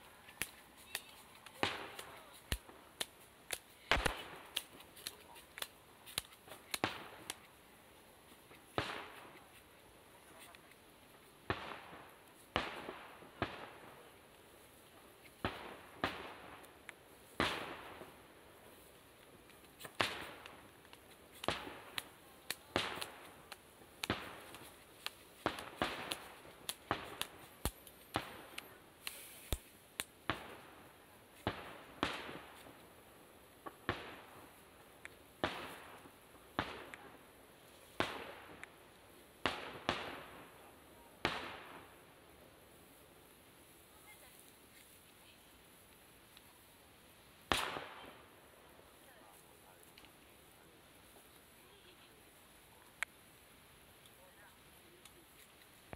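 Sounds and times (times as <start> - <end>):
firework shells bursting: 0.2 - 7.6, 19.4 - 30.8.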